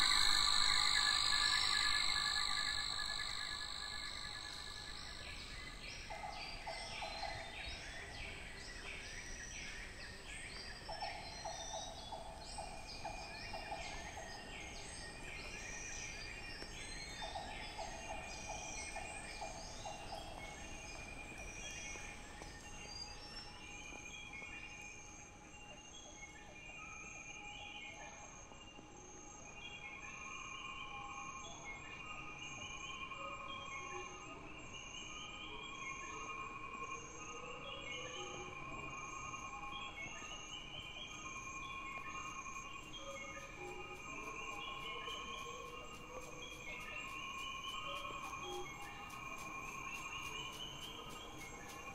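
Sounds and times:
fast repeated high chirps: 0.0s - 5.2s
low buzzing trill: 0.0s - 5.3s
high steady insect calls: 0.0s - 27.4s, 38.0s - 51.9s.

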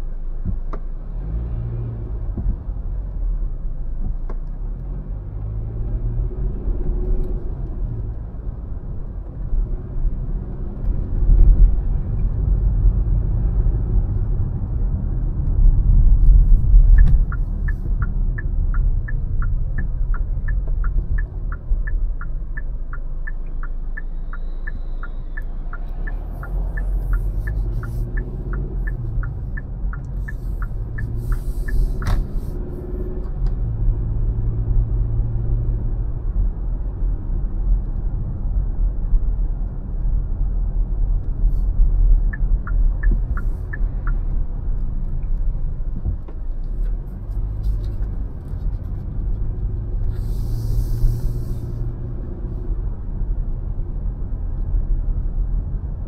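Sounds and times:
car engine and tyres rumbling: 0.0s - 56.0s
turn signal ticking: 5.4s - 35.8s, 40.9s - 52.5s.

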